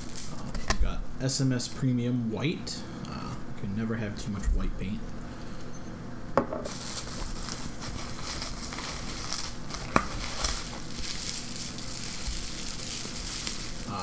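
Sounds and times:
bubble wrap crinkling: 0.0s - 0.8s, 6.6s - 14.0s.

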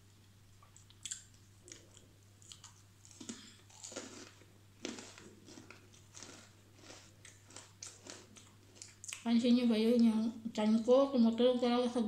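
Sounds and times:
person chewing crunchy biscuit: 0.7s - 9.2s.

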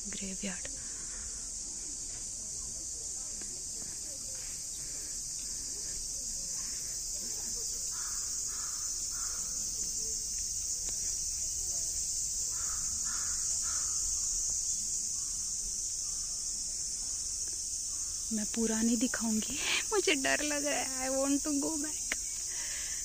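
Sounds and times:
high-pitched insect drone: 3.7s - 23.0s
crow cawing: 7.9s - 9.6s, 12.5s - 14.2s.

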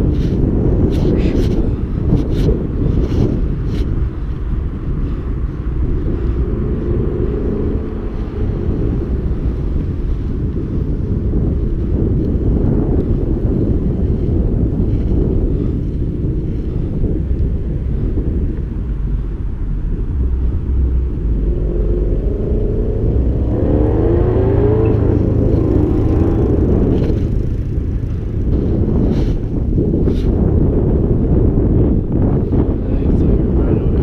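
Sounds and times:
wind rumble on microphone: 0.0s - 34.0s
car engine passing: 5.1s - 10.9s, 17.9s - 29.5s.

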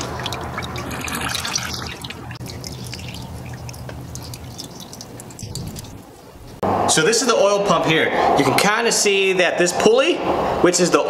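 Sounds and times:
oil dripping into plastic tub: 0.0s - 6.2s
low steady hum: 0.0s - 7.5s.

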